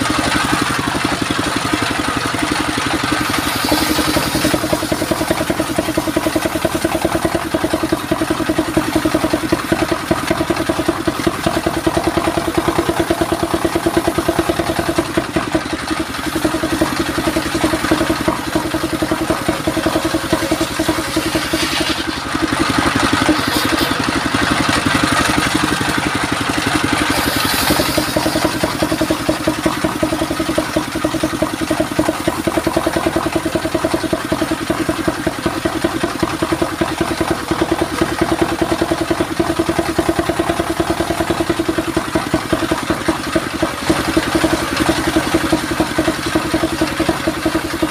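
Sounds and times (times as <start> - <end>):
table saw engine running: 0.0 - 47.9
saw blade ripping wood: 20.3 - 22.3, 26.9 - 28.7.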